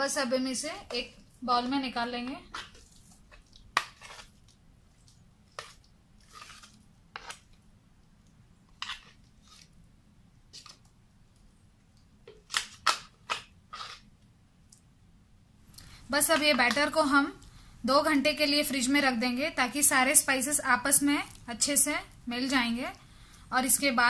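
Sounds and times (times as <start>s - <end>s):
scraping in plastic jar: 5.6s - 7.5s.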